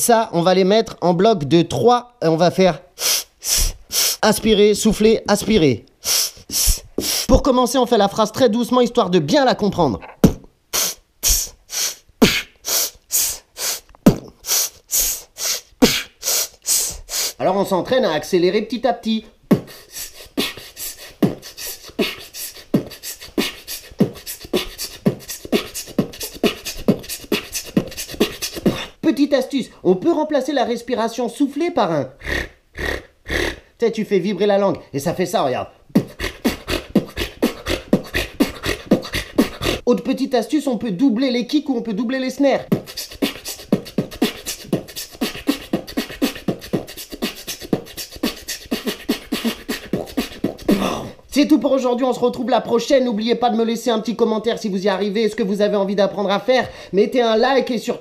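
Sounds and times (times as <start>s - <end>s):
beatboxing: 3.0s - 7.6s, 10.0s - 17.6s, 19.5s - 29.0s, 35.9s - 40.2s, 42.6s - 51.6s.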